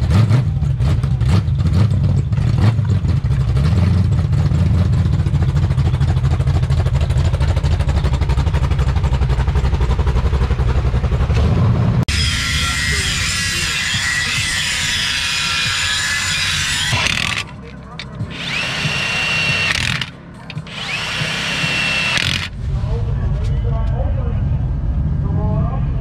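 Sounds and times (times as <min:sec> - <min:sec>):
engine idling with choppy beat: 0:00.3 - 0:12.0, 0:17.0 - 0:24.2
sharp engine cracks: 0:16.9 - 0:22.6.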